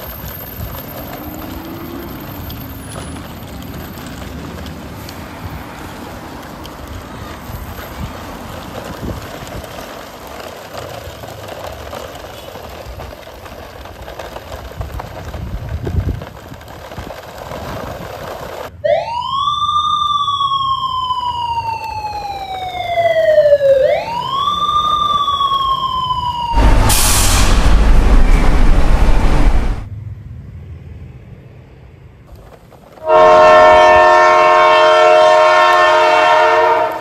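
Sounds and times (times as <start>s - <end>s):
siren wailing: 18.8s - 29.8s
low rumbles: 26.5s - 29.9s.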